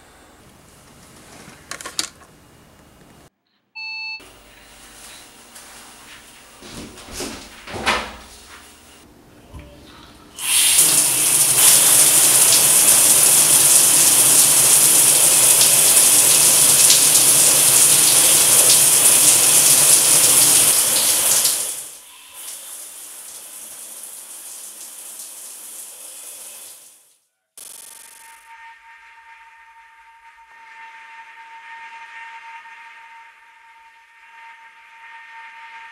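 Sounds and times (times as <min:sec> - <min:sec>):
shower water spraying: 0:10.4 - 0:28.4
steady high tone: 0:27.6 - 0:31.1.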